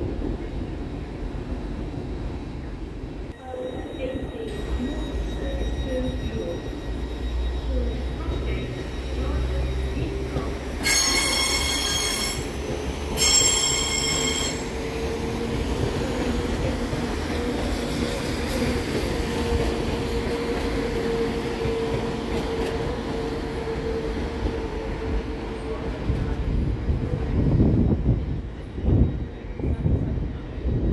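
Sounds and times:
train rumbling: 0.0 - 30.9
train wheels squealing: 3.4 - 15.4.

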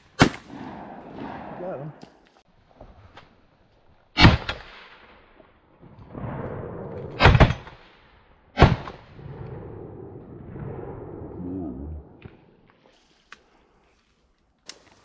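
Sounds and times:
loud shotgun shots: 0.1 - 2.0, 4.2 - 5.0, 7.1 - 7.9, 8.6 - 9.1.

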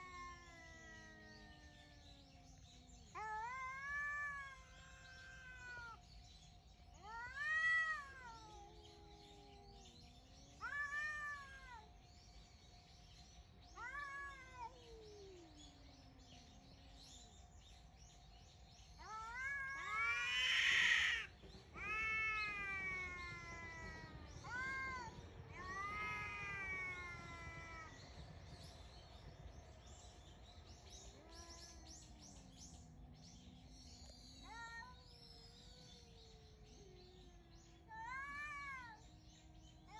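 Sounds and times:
cats yowling: 0.0 - 6.1, 6.9 - 12.4, 13.6 - 16.7, 18.9 - 28.8, 31.0 - 32.6, 34.1 - 39.9.

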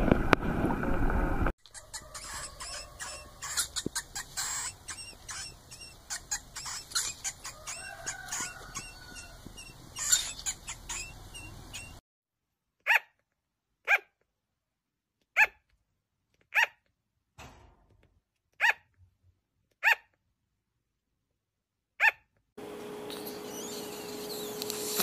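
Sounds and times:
mouse squeaking: 1.6 - 12.0, 23.1 - 25.0
sugar glider barks: 1.7 - 12.0.

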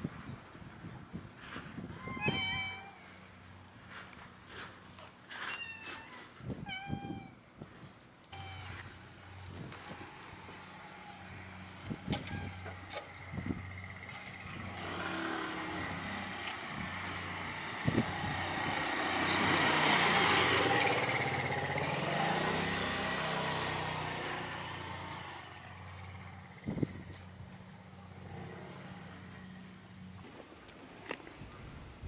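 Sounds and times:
motor scooter passing: 8.4 - 32.0.

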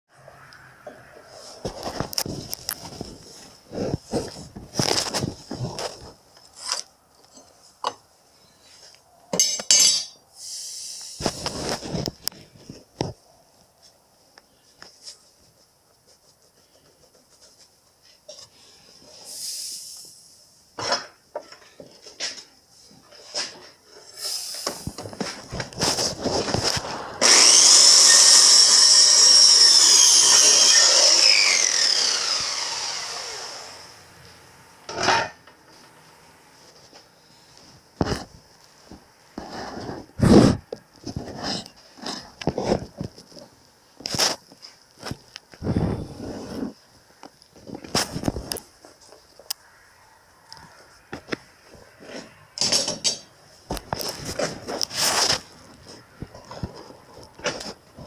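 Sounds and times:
rustling: 1.2 - 7.8, 21.6 - 27.6, 53.6 - 58.0
metallic clinks and knocks: 9.3 - 10.2
circular saw motor whining: 26.8 - 34.8.

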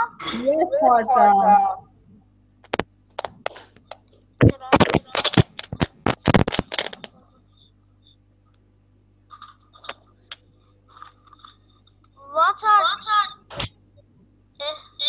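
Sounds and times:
object handled against microphone: 4.4 - 7.1.

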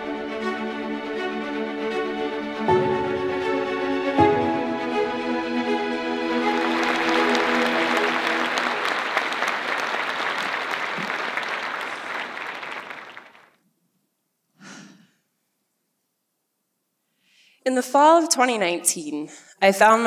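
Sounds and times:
audience applauding: 5.9 - 13.6.

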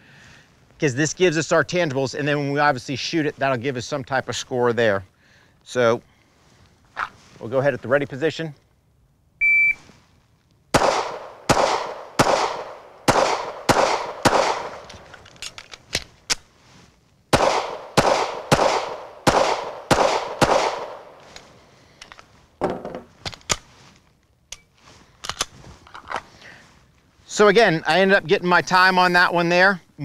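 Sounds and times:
pistol shots: 10.7 - 15.0, 17.3 - 21.2
magazine clicks and rattles: 11.8 - 16.5, 17.6 - 23.7, 24.5 - 26.3.

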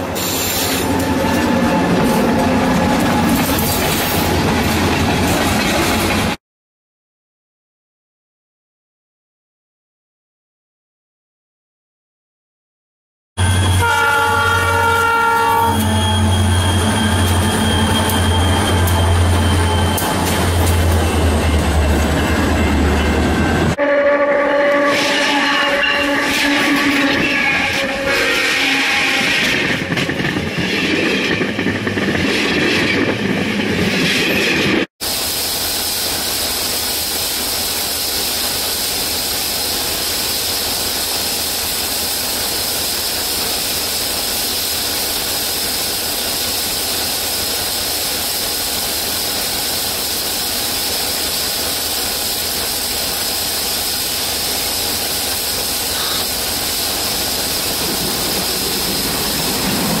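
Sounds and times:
train noise: 0.0 - 6.4, 13.4 - 60.0.

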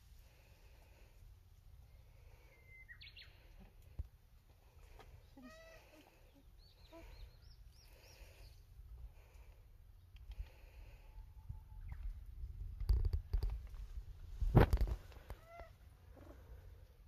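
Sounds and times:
distant bird calls: 1.8 - 3.9, 4.8 - 9.5
high bird chirps: 2.5 - 3.3.

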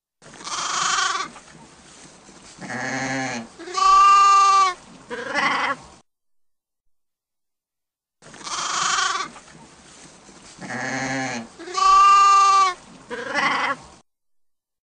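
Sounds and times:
sheep bleating: 0.3 - 1.3, 2.6 - 5.8, 8.4 - 9.4, 10.6 - 13.8.

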